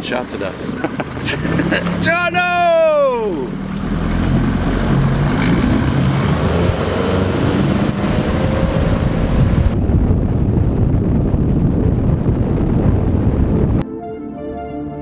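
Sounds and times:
outboard motor at full throttle: 0:00.0 - 0:13.5
wind rumbling on microphone: 0:03.6 - 0:13.8.

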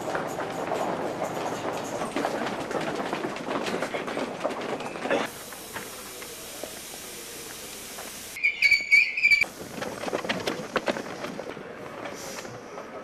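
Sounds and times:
crowd shuffling: 0:00.0 - 0:08.3, 0:09.4 - 0:13.0
bustle of passengers boarding: 0:00.0 - 0:13.0
train air release hiss: 0:05.3 - 0:09.7, 0:12.1 - 0:12.8
shrill whistle blasts: 0:08.4 - 0:09.5.

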